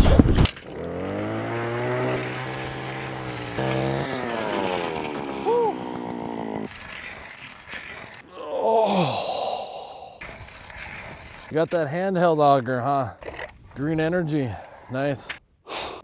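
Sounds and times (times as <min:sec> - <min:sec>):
small engine running: 0:00.4 - 0:08.2.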